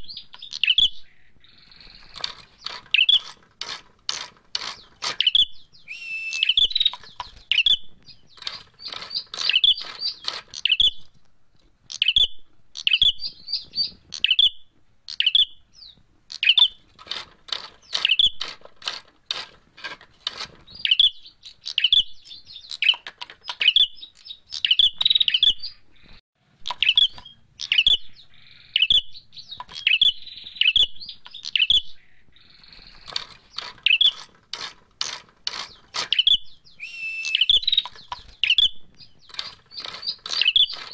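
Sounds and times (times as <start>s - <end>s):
bird chirping: 0.0s - 40.9s
wings flicking clicks: 6.2s - 11.3s, 37.2s - 40.9s.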